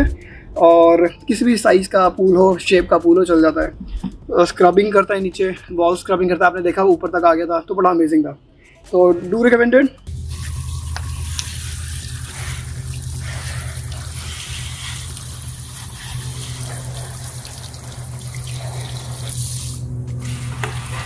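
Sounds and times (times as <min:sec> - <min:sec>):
low hum: 0:10.0 - 0:21.0
hose spraying water: 0:10.1 - 0:21.0.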